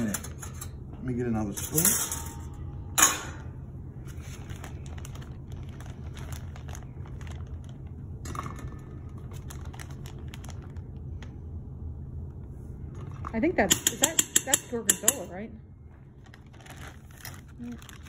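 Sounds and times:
steady low hum: 0.0 - 18.0
plastic bag crinkling: 4.1 - 11.3, 15.9 - 18.0.

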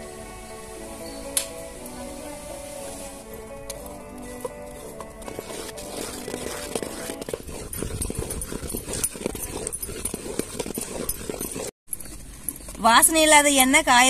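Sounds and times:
spoon scraping metal pot: 4.5 - 11.7.

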